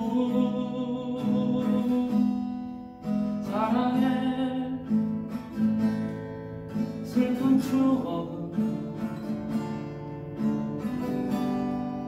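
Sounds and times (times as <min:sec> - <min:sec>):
man singing: 0:00.0 - 0:05.1, 0:06.8 - 0:09.2
acoustic guitar strumming: 0:00.0 - 0:12.0.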